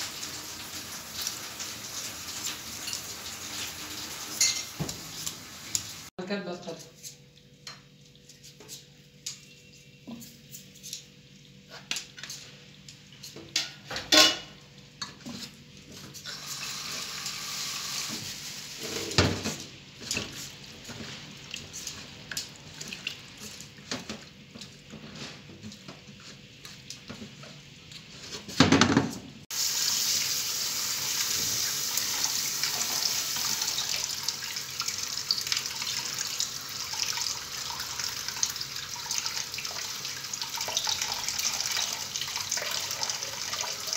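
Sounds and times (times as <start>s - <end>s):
tap water running into bowl: 0.0s - 6.1s, 29.6s - 43.9s.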